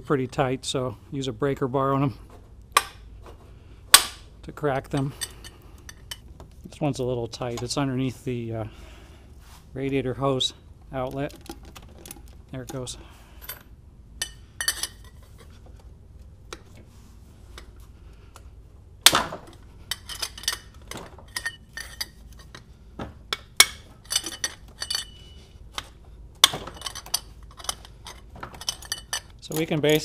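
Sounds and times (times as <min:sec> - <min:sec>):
metal tools clinking: 0:04.9 - 0:06.3, 0:11.0 - 0:15.6, 0:19.5 - 0:22.7, 0:23.6 - 0:30.0.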